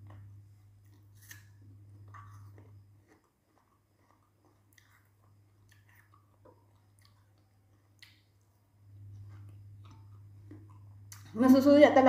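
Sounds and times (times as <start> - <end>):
chewing food with crunches: 0.0 - 11.4
low steady hum: 0.0 - 12.0.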